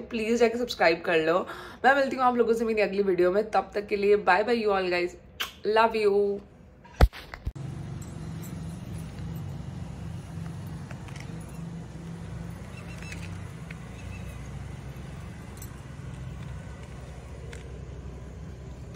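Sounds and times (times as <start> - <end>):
low outdoor traffic rumble: 7.6 - 18.9.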